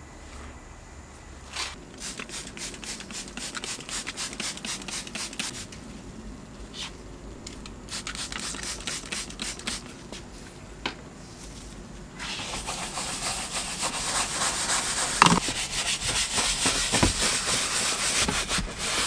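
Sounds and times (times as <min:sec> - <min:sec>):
spray bottle squirting: 0:02.0 - 0:05.6, 0:07.9 - 0:09.9, 0:15.2 - 0:15.5.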